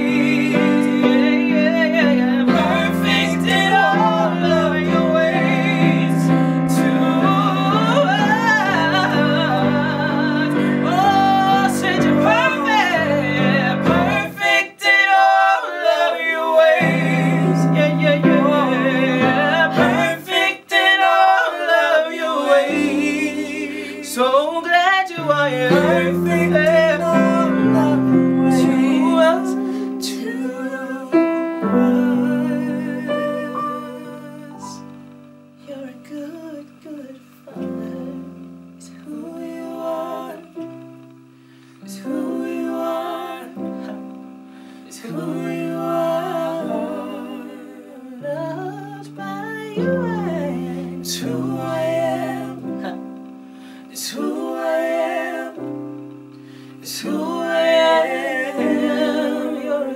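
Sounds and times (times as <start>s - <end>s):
electric keyboard chords: 0.0s - 24.1s, 25.2s - 59.9s
woman singing with vibrato: 0.0s - 35.0s.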